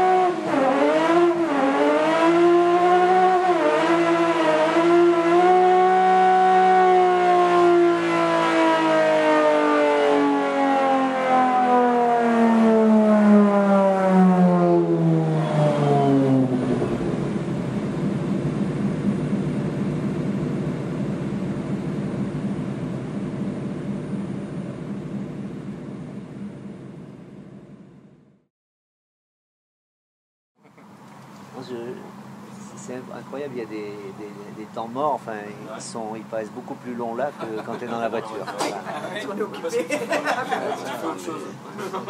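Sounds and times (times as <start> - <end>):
race engine on dynamometer: 0.0 - 28.2.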